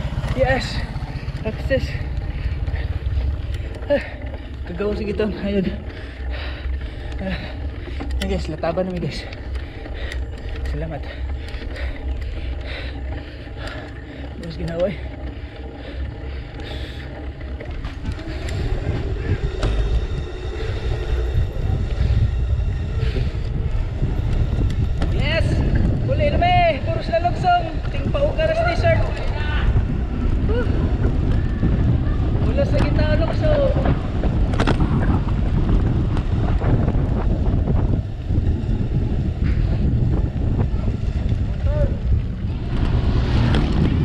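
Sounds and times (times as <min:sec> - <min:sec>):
wind buffeting microphone: 0:00.0 - 0:44.0
light clicks and rattles: 0:00.2 - 0:21.3.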